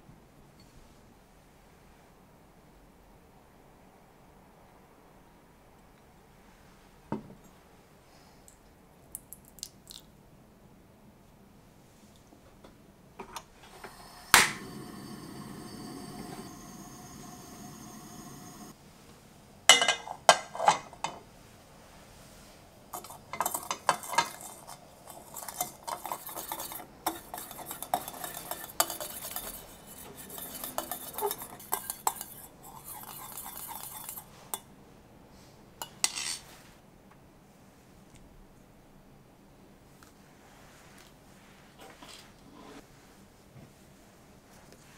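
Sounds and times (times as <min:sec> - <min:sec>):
whisk clattering in metal bowl: 0:23.0 - 0:34.3.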